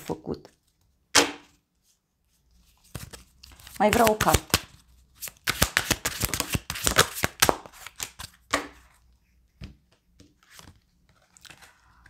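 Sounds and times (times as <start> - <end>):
cards being shuffled: 2.6 - 8.8, 10.4 - 12.0.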